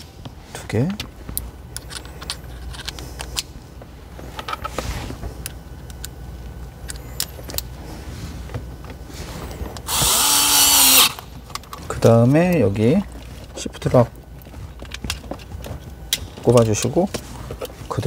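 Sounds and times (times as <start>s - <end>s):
cordless screwdriver running: 9.9s - 11.2s.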